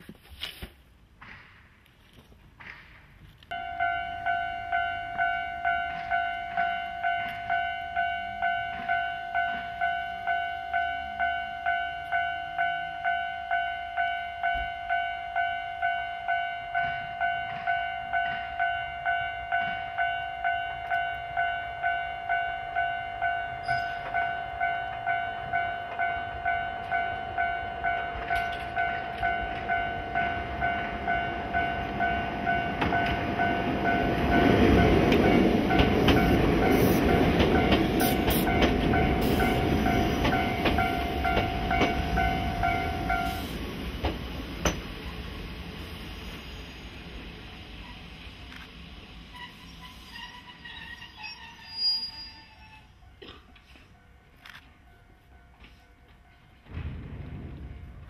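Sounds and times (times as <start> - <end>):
train wheels rumbling on rails: 0.0 - 58.0
level crossing bell ringing: 3.5 - 43.4.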